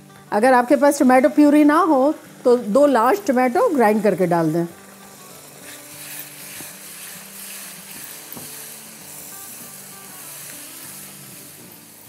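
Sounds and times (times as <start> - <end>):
masala sizzling in pan: 0.0 - 12.0
spatula stirring: 5.1 - 11.2.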